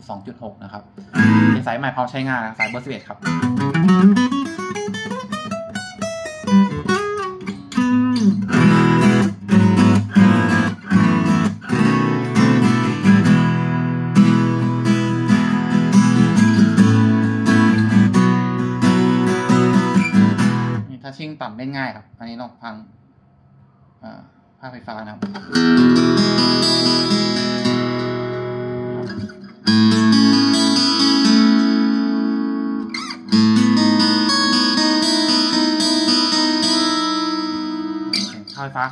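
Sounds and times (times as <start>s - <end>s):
acoustic guitar single notes: 1.0s - 1.6s, 2.6s - 4.1s, 25.2s - 38.8s
acoustic guitar strummed chords: 1.0s - 1.7s, 2.6s - 20.9s, 25.2s - 38.9s.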